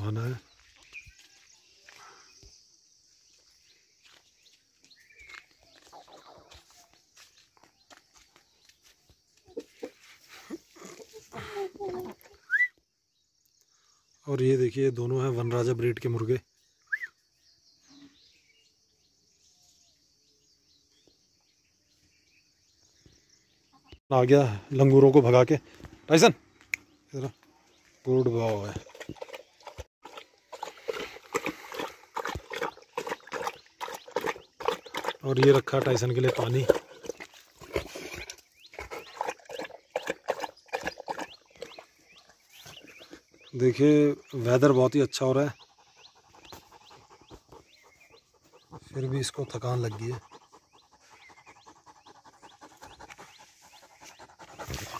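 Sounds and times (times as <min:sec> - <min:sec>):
bird chirps: 0:00.0 - 0:14.4, 0:16.1 - 0:24.0, 0:30.8 - 0:54.9
dog breathing hard: 0:30.5 - 0:35.0, 0:45.6 - 0:49.0, 0:49.9 - 0:54.9.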